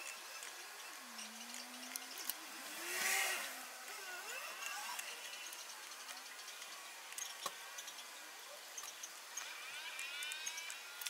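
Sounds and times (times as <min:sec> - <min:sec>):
vehicle engine passing: 0:01.0 - 0:04.6.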